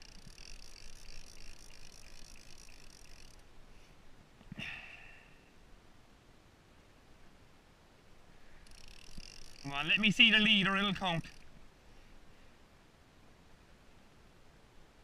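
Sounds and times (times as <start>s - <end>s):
fishing reel ratchet buzzing: 0.0s - 3.5s, 8.6s - 11.5s.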